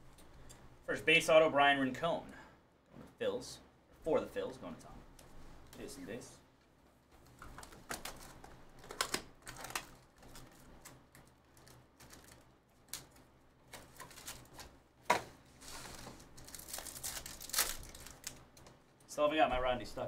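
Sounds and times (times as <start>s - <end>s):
cardboard box and packs handled: 15.5s - 18.4s.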